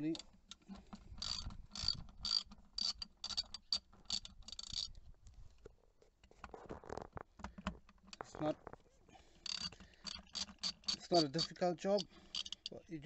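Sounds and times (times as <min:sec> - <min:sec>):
ratcheting driver clicking: 0:00.1 - 0:04.9, 0:09.4 - 0:12.8.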